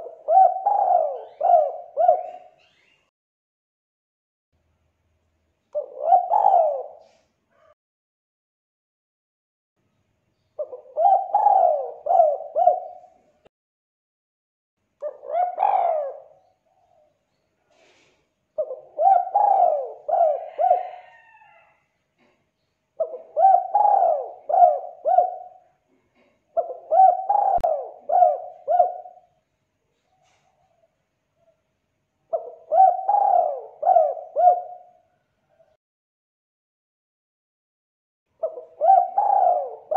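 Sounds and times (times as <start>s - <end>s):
dove cooing: 0.0s - 2.9s, 5.8s - 7.8s, 10.6s - 13.4s, 15.0s - 17.0s, 18.6s - 21.8s, 23.0s - 29.4s, 30.0s - 30.9s, 32.3s - 35.8s, 38.4s - 39.9s.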